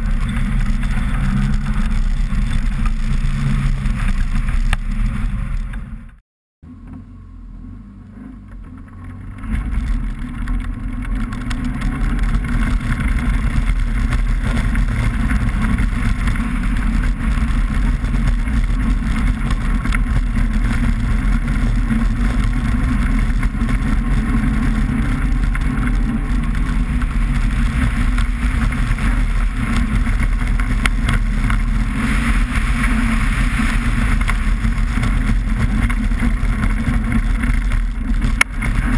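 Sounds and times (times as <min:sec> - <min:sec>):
tyres rushing on ice: 0:09.2 - 0:38.9.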